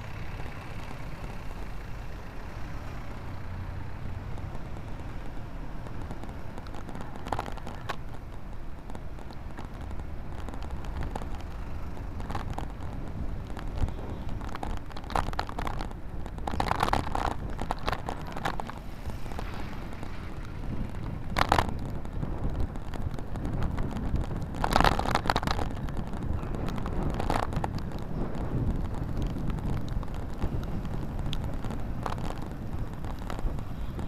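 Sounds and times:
wind rumble on microphone: 0:00.0 - 0:34.0
clicks and rattles: 0:10.4 - 0:18.9.

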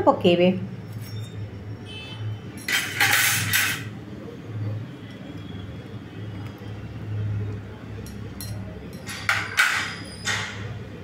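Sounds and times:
utensils scraping a frying pan: 0:02.7 - 0:03.9.

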